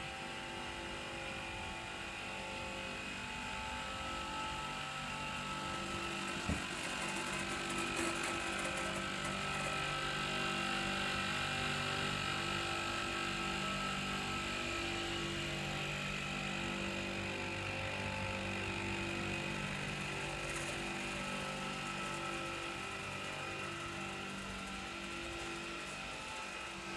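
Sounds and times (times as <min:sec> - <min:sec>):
air compressor humming: 0:03.7 - 0:09.9.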